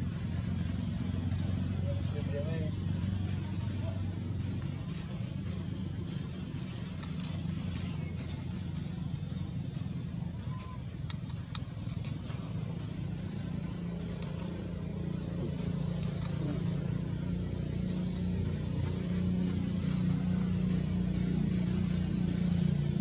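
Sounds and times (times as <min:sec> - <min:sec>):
vehicle engine humming: 0:00.0 - 0:23.0
faint high chirps: 0:10.4 - 0:11.0.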